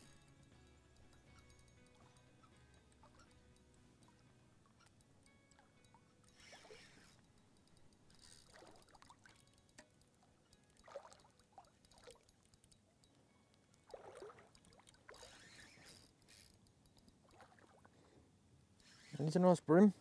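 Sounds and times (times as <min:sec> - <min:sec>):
faint water splashing: 0:08.4 - 0:12.4, 0:13.8 - 0:16.0, 0:17.2 - 0:18.2.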